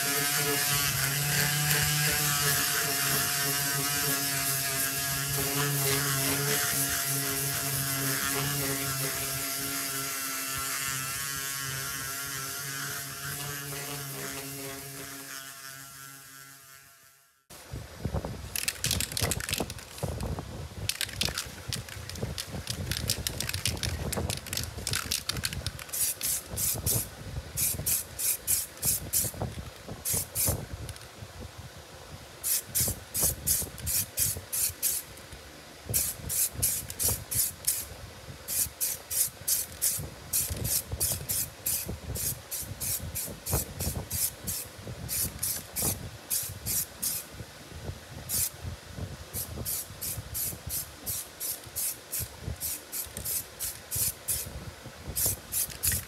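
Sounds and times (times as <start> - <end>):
aerosol can spraying bursts: 0.0 - 15.8, 20.9 - 29.4, 30.0 - 30.6, 32.4 - 35.1, 35.9 - 37.9, 38.5 - 47.3, 48.3 - 48.5, 49.4 - 54.6, 55.2 - 56.0.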